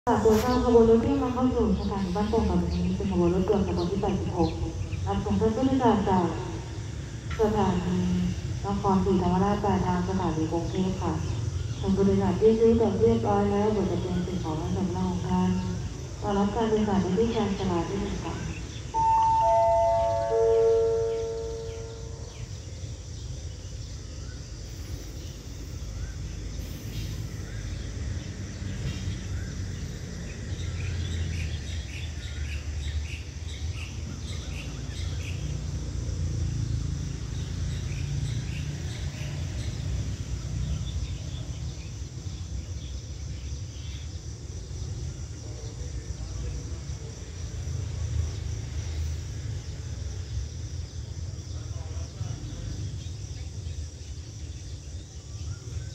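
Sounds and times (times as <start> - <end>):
birds chirping: 0.1 - 6.8, 7.4 - 35.5
high insect trill: 0.1 - 55.9.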